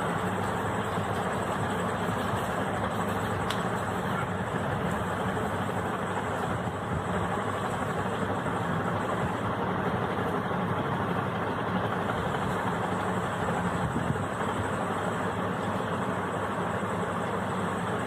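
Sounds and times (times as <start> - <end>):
steady machine drone: 0.0 - 18.0.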